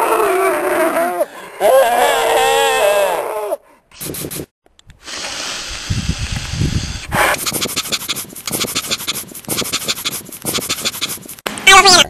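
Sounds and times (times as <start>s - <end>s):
rapid panting: 7.3s - 11.4s.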